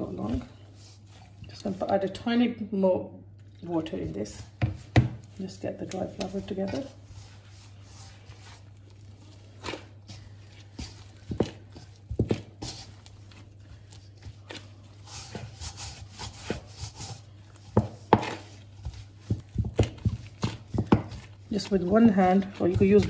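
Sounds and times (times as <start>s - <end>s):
hands kneading dough in a bowl: 0.0s - 23.0s
dough thuds: 4.0s - 7.0s, 9.6s - 13.5s, 14.2s - 23.0s.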